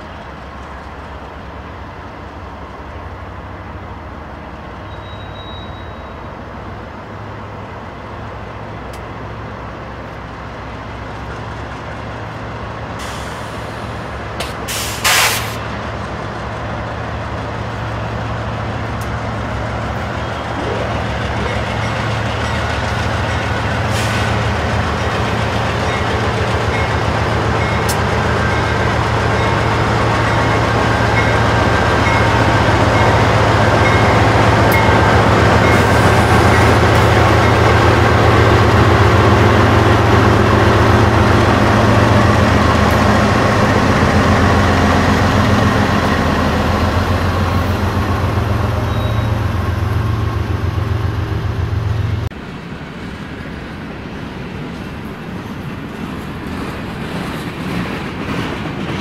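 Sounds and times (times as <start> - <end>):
steel wheels rumbling on rails: 0.0 - 59.0
locomotive engine drone: 15.6 - 57.2.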